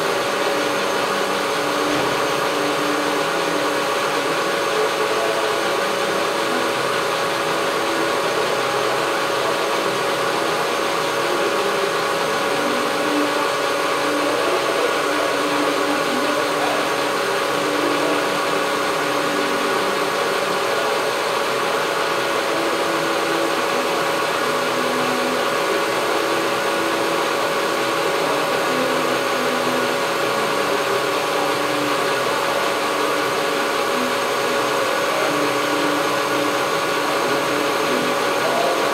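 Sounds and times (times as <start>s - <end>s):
lathe whirring and whining: 0.0s - 38.9s.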